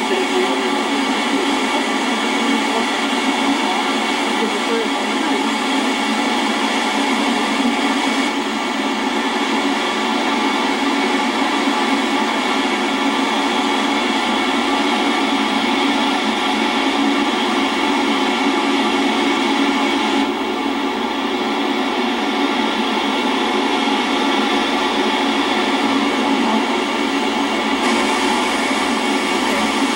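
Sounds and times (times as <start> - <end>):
waterfall roaring: 27.7 - 29.9.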